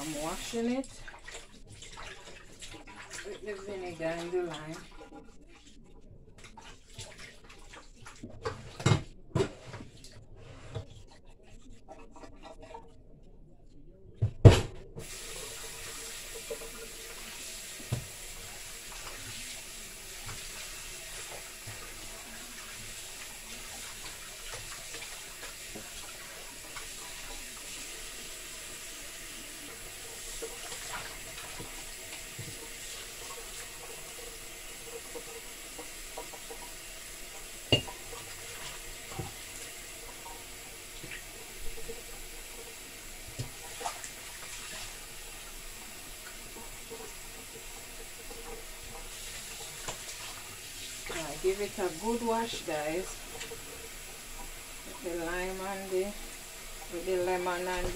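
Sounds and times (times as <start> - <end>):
tap running into steel sink: 17.8 - 18.2, 37.7 - 39.4.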